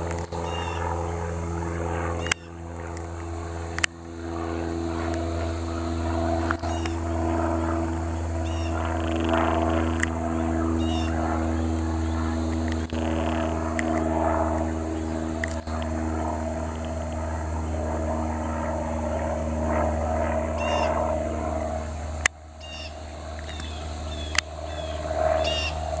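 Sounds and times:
sharp clicks: 0.0 - 0.4, 2.2 - 4.0, 6.4 - 7.0, 9.0 - 10.2, 12.5 - 14.7, 15.3 - 16.0, 23.3 - 24.5
propeller aircraft droning: 0.0 - 26.0
small birds chirping: 0.0 - 26.0.

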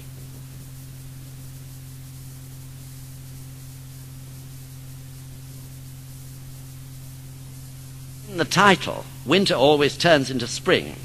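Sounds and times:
even hiss: 0.0 - 11.0.

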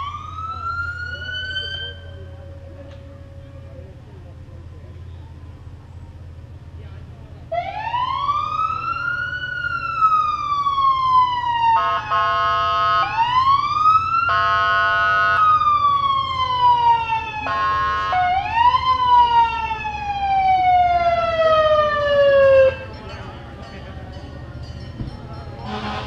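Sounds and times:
emergency vehicle siren wailing: 0.0 - 6.8, 7.4 - 26.0
horn blasts: 11.7 - 13.3, 14.3 - 15.6, 17.4 - 18.4, 25.6 - 26.0.

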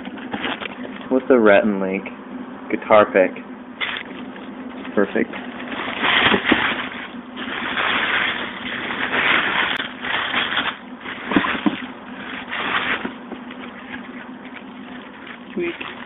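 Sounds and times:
tissue paper rustling: 5.4 - 16.0.

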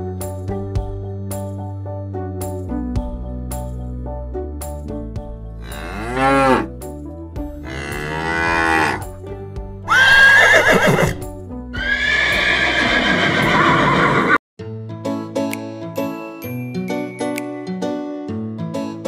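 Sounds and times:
light background music: 0.0 - 13.9, 14.6 - 19.0
cow mooing: 5.6 - 6.7, 7.6 - 9.1
horse whinnying: 7.7 - 9.0, 9.9 - 11.2, 11.8 - 14.4.

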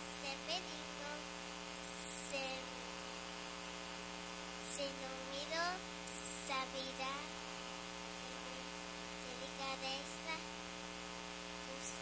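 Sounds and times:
girl speaking into a microphone: 0.0 - 2.8, 4.6 - 7.4, 9.2 - 10.6, 11.6 - 12.0
electrical mains hum: 0.0 - 12.0.

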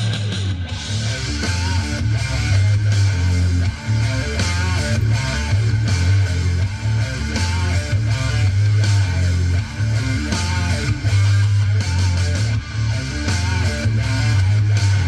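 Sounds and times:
rock music through a speaker: 0.0 - 15.0.

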